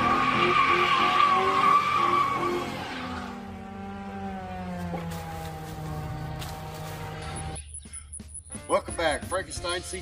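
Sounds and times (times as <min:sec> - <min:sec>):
tyres squealing: 0:00.0 - 0:03.2
car engine revving: 0:00.0 - 0:07.6.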